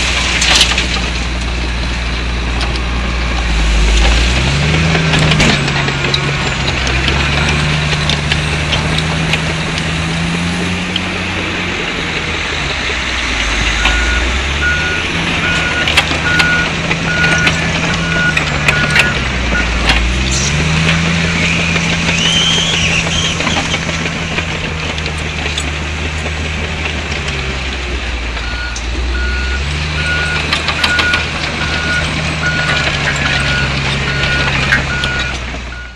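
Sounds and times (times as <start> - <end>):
bulldozer diesel engine under load: 0.0 - 35.9
reversing alarm beeping: 13.8 - 19.7, 28.4 - 35.9.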